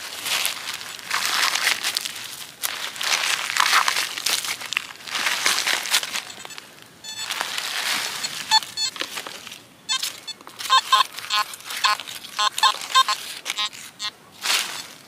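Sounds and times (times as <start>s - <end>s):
soil and dry leaves rustling: 0.0s - 15.0s
metal detector beeping: 4.8s - 15.0s.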